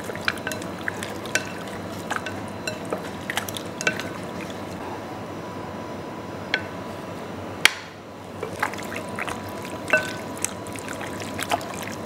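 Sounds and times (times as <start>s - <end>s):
wet sauce stirring: 0.0s - 4.8s, 8.4s - 12.0s.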